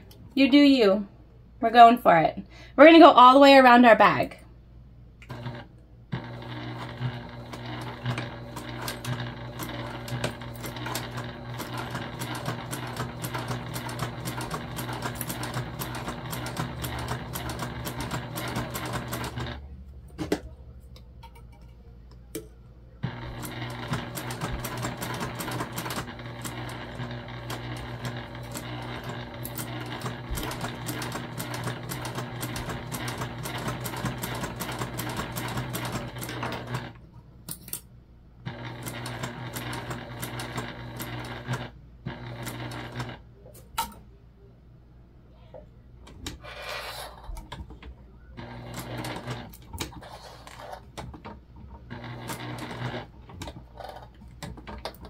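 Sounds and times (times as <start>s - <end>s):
sewing machine stitching: 5.3s - 19.7s, 23.0s - 37.0s, 38.5s - 43.2s, 48.4s - 55.0s.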